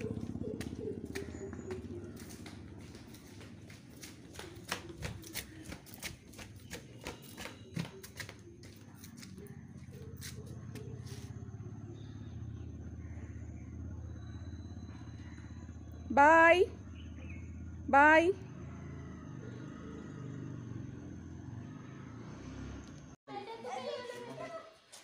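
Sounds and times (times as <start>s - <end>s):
footsteps on tiled floor: 0.0s - 11.3s
motorcycle engine humming: 0.0s - 23.2s.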